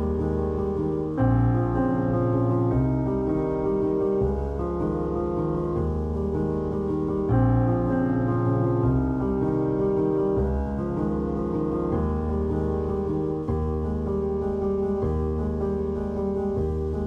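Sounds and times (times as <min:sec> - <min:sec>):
slow piano chords: 0:00.0 - 0:17.0.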